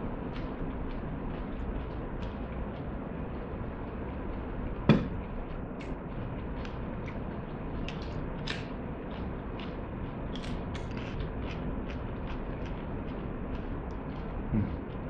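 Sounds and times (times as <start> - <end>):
low background hum: 0.0 - 15.0
sharp knock: 4.9 - 5.2
chili pepper crunching when chewed: 9.6 - 14.9.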